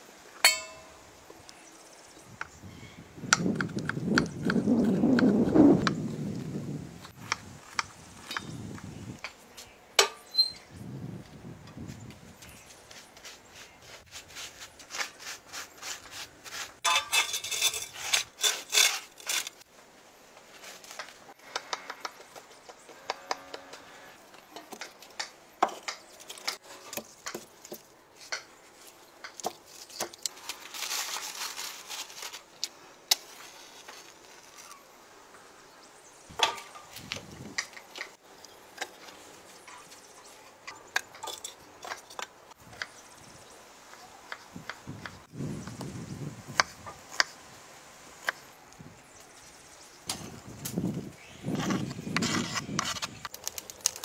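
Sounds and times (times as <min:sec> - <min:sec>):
kindling rustling and scraping: 0:14.8 - 0:19.7, 0:28.8 - 0:34.8
wood knocking on wood and stone: 0:36.3 - 0:38.1.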